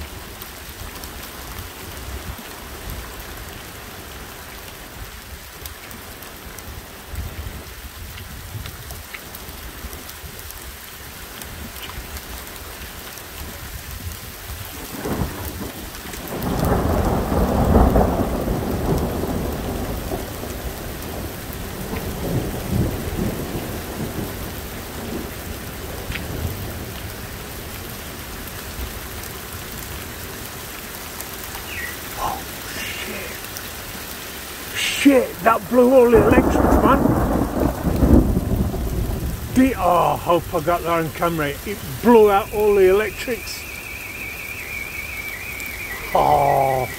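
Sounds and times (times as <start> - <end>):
steady rain falling: 0.0 - 46.9
thunder rumbling: 13.7 - 26.9, 31.5 - 46.9.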